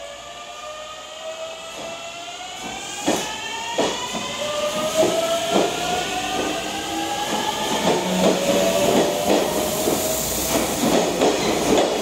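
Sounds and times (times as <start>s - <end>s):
train wheels clacking over rail joints: 7.2s - 12.0s.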